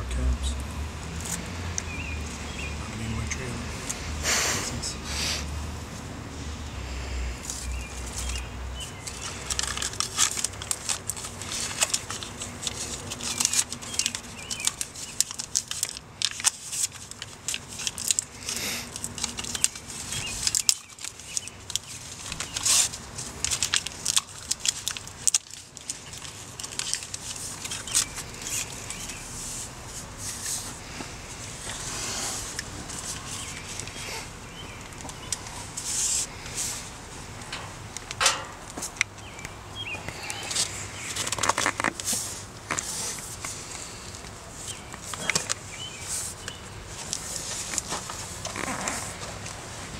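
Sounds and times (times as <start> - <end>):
tape ripping and crinkling: 9.0 - 36.9, 40.4 - 49.6.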